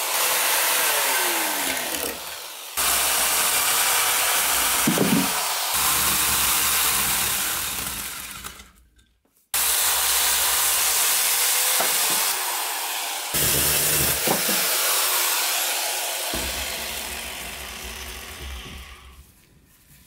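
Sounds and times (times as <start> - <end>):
electric chainsaw cutting wood: 0.0 - 8.8, 9.6 - 19.2
knocks of saw bar on root: 4.8 - 5.4.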